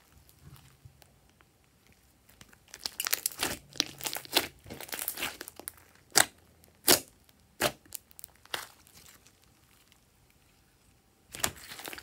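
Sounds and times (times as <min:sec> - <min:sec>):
slime clicking and crackling: 0:02.2 - 0:10.0, 0:11.3 - 0:12.0
slime popping: 0:02.7 - 0:09.2.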